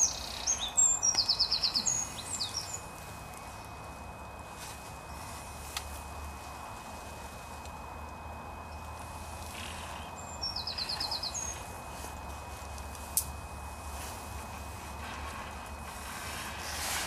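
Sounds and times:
small bird singing: 0:00.0 - 0:03.0, 0:09.5 - 0:11.8
faint outdoor hiss: 0:00.0 - 0:17.0.

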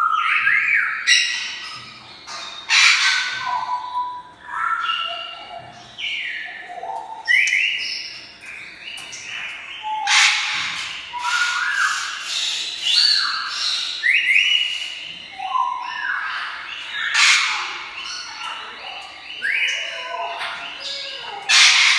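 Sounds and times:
parrot squawks: 0:02.7 - 0:03.5, 0:10.0 - 0:13.4, 0:17.0 - 0:18.5, 0:19.4 - 0:21.9.

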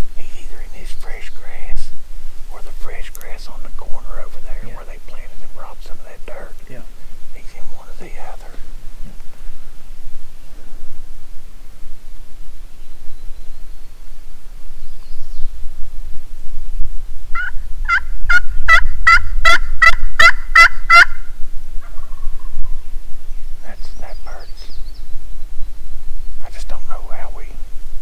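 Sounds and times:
turkey call yelps: 0:17.3 - 0:22.7.

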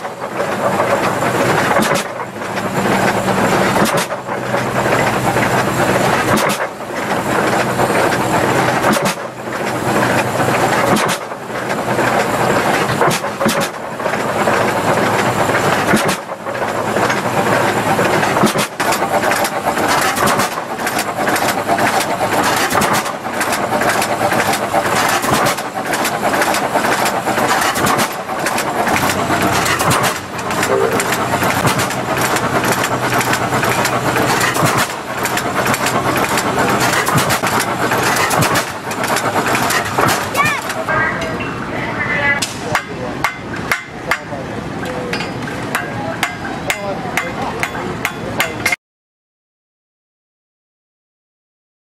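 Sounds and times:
threshing machine rattle: 0:00.0 - 0:41.0
tractor engine running: 0:00.0 - 0:48.7.

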